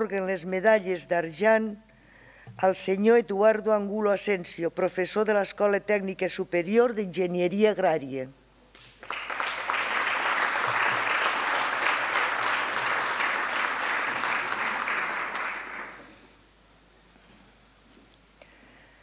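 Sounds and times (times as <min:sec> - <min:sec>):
audience clapping: 0:08.7 - 0:16.2.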